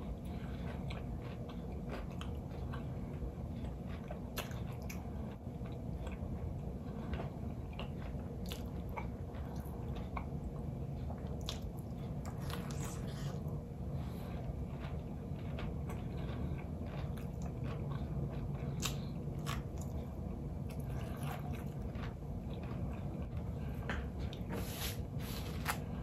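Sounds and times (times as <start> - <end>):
steady low hum: 0.0 - 26.0
crunchy biting and chewing: 11.0 - 24.5.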